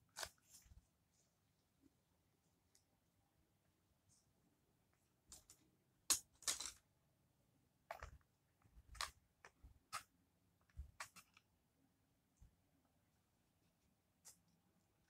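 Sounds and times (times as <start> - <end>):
plastic fork on foil tray: 0.0 - 0.6, 10.7 - 11.4.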